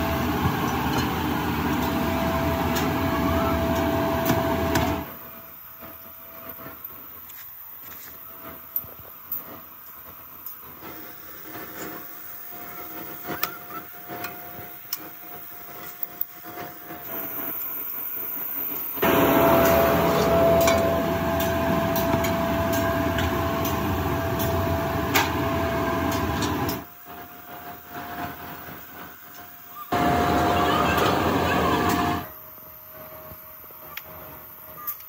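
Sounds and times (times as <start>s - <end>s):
loud machine noise with tone: 0.0s - 6.8s, 10.6s - 35.0s
steady machine hum: 0.0s - 34.8s.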